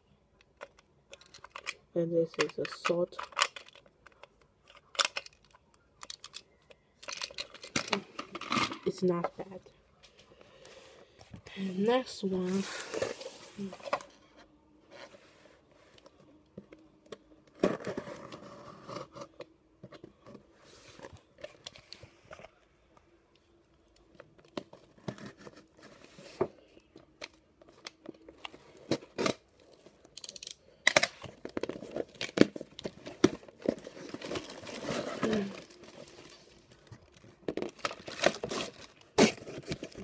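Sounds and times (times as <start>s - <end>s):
tape and cardboard tearing: 37.7s - 40.0s.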